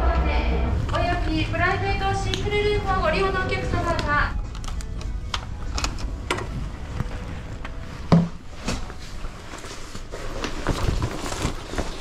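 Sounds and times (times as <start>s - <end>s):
jacket rustling: 6.1s - 12.0s.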